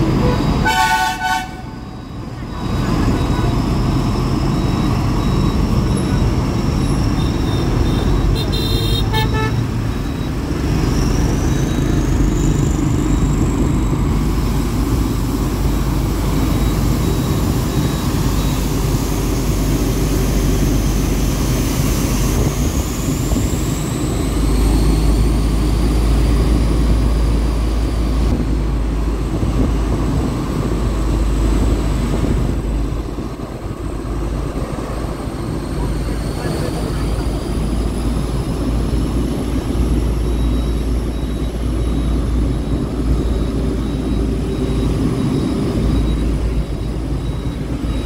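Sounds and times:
locomotive engine rumbling: 0:00.0 - 0:48.0.

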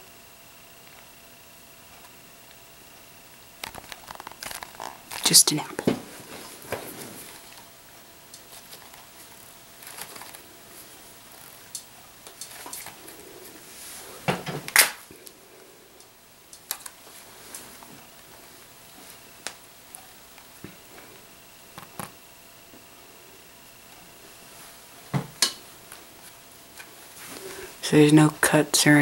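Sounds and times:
apple cracking apart: 0:03.6 - 0:05.3, 0:14.6 - 0:15.4
apple creaking under thumbs: 0:03.6 - 0:05.3.

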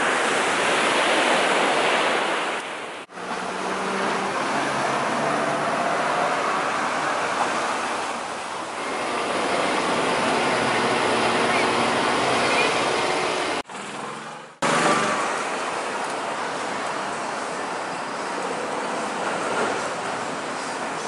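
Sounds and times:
ocean surf: 0:00.0 - 0:13.7, 0:14.6 - 0:21.0
street noise: 0:00.0 - 0:21.0
vehicle engine hum: 0:03.1 - 0:21.0.

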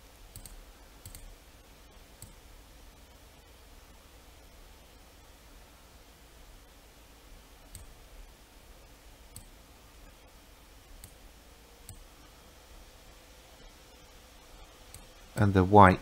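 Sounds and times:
low background hiss: 0:00.0 - 0:16.0
computer mouse clicks: 0:00.3 - 0:01.4, 0:02.2 - 0:02.4, 0:07.7 - 0:08.0, 0:09.3 - 0:09.6, 0:11.0 - 0:11.2, 0:11.8 - 0:12.1.

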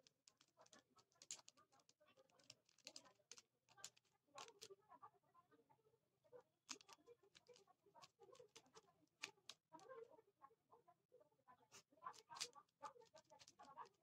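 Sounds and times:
puzzle cube clicking: 0:00.0 - 0:01.6, 0:02.3 - 0:04.7, 0:06.7 - 0:07.6, 0:08.4 - 0:09.6, 0:12.2 - 0:13.6.

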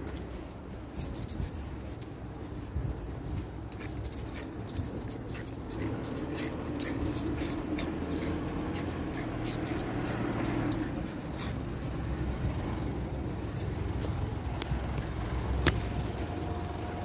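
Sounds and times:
dog paws ticking on paving: 0:00.0 - 0:17.0
faint high squeaks: 0:06.2 - 0:08.8.

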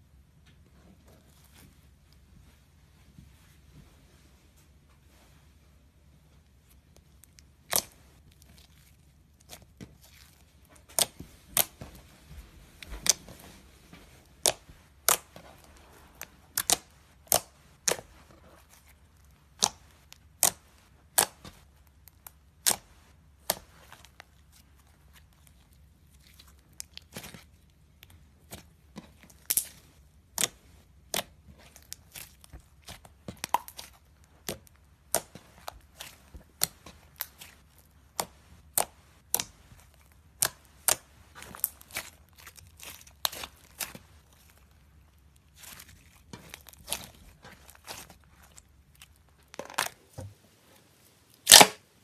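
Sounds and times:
fingers squeezing slime: 0:06.7 - 0:12.2, 0:14.2 - 0:50.0.

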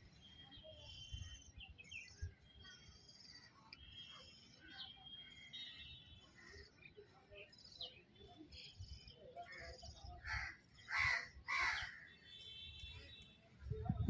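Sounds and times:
birds chirping and trilling: 0:00.0 - 0:13.2
harsh bird calls: 0:09.6 - 0:12.2.

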